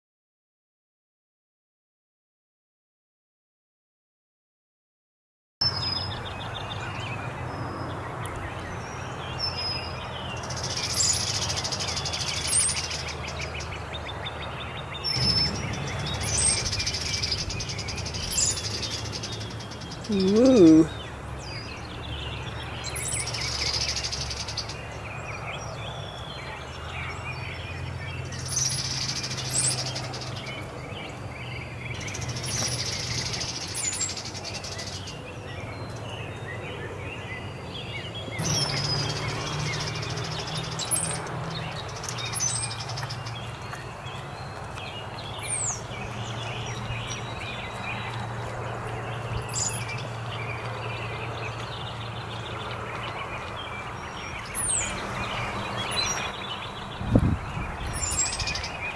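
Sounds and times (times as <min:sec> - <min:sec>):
birds singing: 0:05.6 - 0:58.9.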